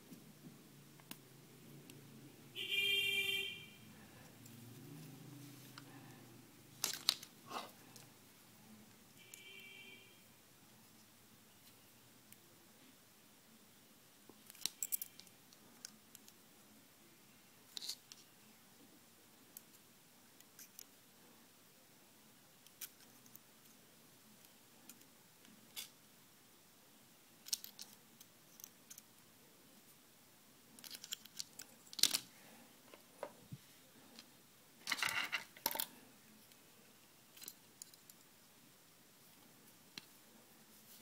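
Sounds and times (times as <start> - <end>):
pliers clicking and scraping wire: 14.4 - 16.4, 22.6 - 23.4, 27.4 - 29.1, 30.7 - 32.3, 37.3 - 38.2.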